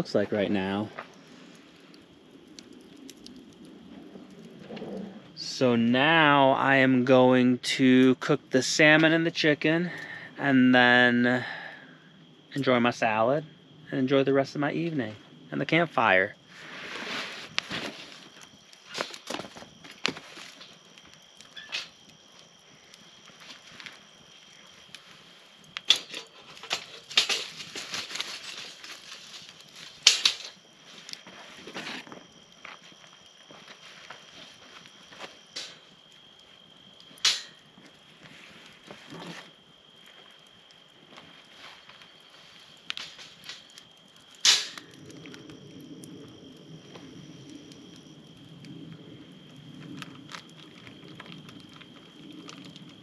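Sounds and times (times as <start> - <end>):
campfire crackling and popping: 0.0 - 53.0
metal grill grate clanking: 25.9 - 28.8, 30.0 - 30.6, 37.2 - 37.6, 44.4 - 44.8
grate clattering and scraping on stones: 25.9 - 30.6.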